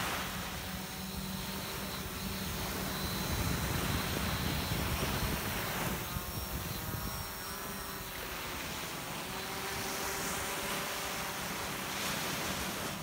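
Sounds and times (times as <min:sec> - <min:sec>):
surf rushing: 0:00.0 - 0:00.7
drone rotors buzzing: 0:00.0 - 0:13.0
wind: 0:00.0 - 0:13.0.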